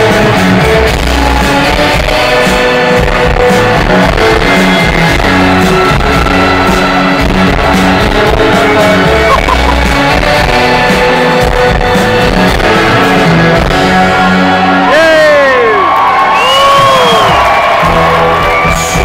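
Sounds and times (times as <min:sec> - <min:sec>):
rock band playing live: 0:00.0 - 0:19.0.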